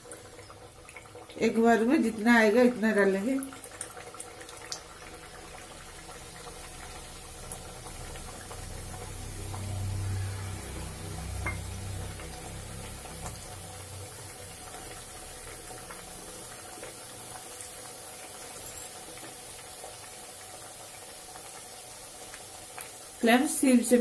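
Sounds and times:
oil bubbling and sizzling: 0:00.0 - 0:24.0
low hum: 0:08.4 - 0:14.4.

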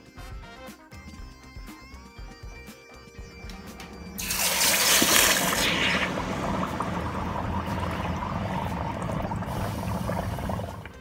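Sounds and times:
water bubbling and crackling: 0:03.3 - 0:11.0
loud hiss of quenching: 0:04.2 - 0:10.9.

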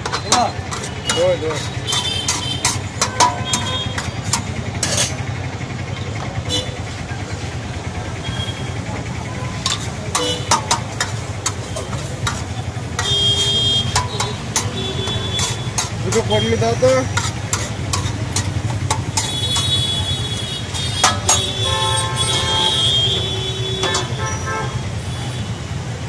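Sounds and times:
spatula scraping a steel plate: 0:00.0 - 0:05.2, 0:09.5 - 0:24.4
street traffic rumble: 0:00.0 - 0:26.0.

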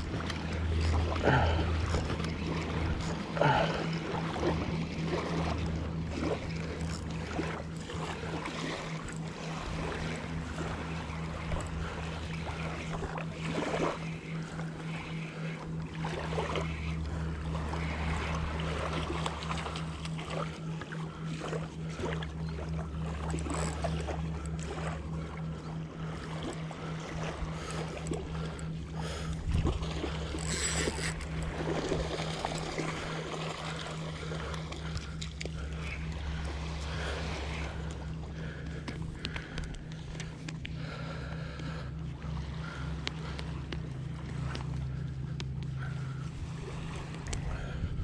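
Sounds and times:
fishing reel cranking: 0:00.0 - 0:04.2, 0:05.2 - 0:13.0, 0:23.2 - 0:25.0, 0:27.5 - 0:36.6
rod handling noise: 0:30.2 - 0:31.6.

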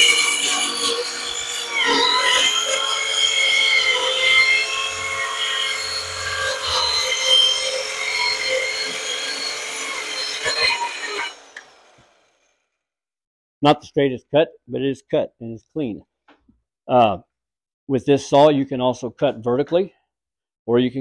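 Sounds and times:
circular saw cutting plywood: 0:00.0 - 0:12.6.

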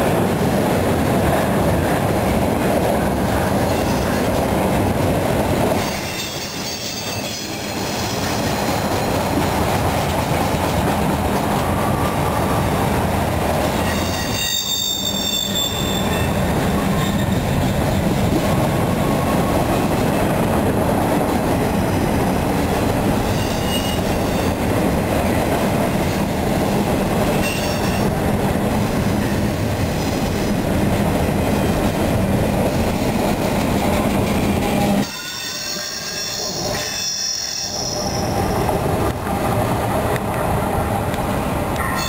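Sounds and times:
train wheels rumbling on rail: 0:00.0 - 0:42.0
faint high wheel squeals: 0:13.8 - 0:16.4, 0:23.3 - 0:24.0, 0:35.0 - 0:38.3.

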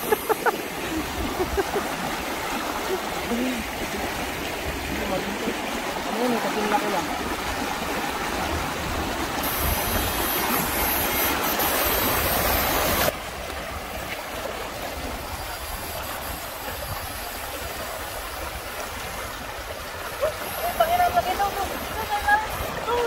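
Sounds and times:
river rapids rushing over rocks: 0:00.0 - 0:23.0.

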